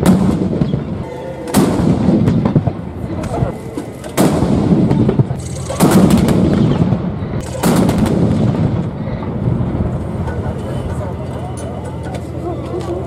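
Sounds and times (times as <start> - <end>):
howitzer booms with rumbling echo: 0.0 - 3.6, 4.2 - 10.6.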